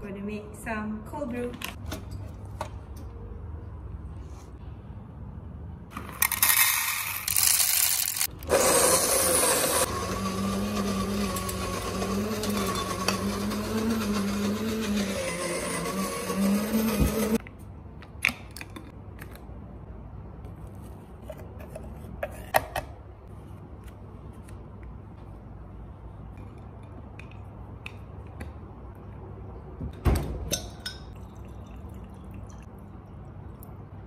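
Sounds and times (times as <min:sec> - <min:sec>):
coffee grinder motor hum: 0:06.3 - 0:17.4.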